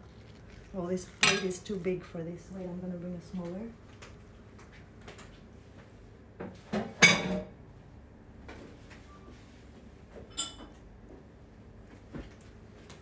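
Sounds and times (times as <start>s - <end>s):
dishes clinking: 6.8s - 7.5s, 10.2s - 10.8s.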